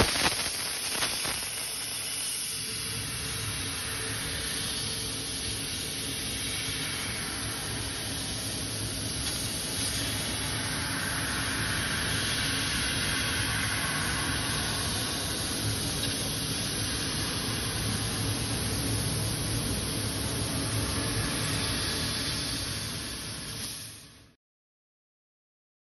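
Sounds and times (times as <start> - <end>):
laser cutter hissing: 0.0 - 24.3.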